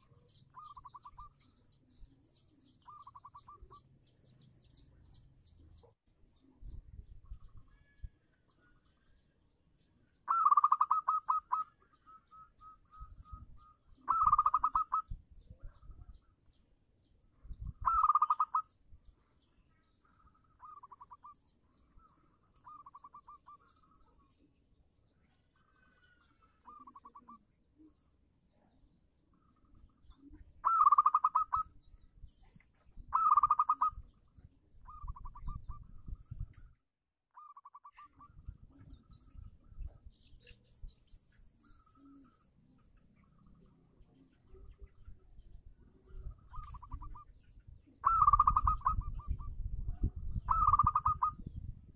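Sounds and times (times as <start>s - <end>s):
dove cooing trills: 0.0s - 1.6s, 2.6s - 3.9s, 10.2s - 15.9s, 17.6s - 18.8s, 20.1s - 24.3s, 25.6s - 28.0s, 30.6s - 31.8s, 33.1s - 34.2s, 34.8s - 35.9s, 45.9s - 47.4s, 48.0s - 51.7s.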